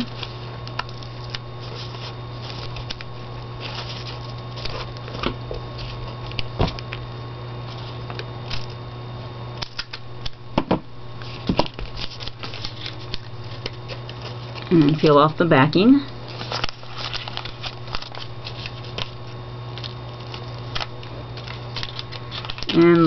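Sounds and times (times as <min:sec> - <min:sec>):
paper rustling: 0:00.0 - 0:06.8, 0:11.2 - 0:15.2, 0:16.3 - 0:23.0
low electrical hum: 0:00.0 - 0:23.0.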